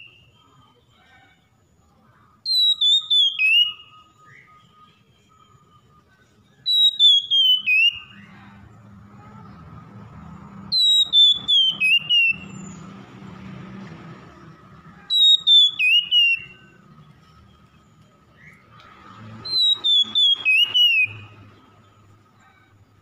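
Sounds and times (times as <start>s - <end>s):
bird singing whistled notes: 0.0s - 1.1s, 2.4s - 8.6s, 10.7s - 13.0s, 14.4s - 23.0s
faint steady high tone: 3.0s - 6.7s.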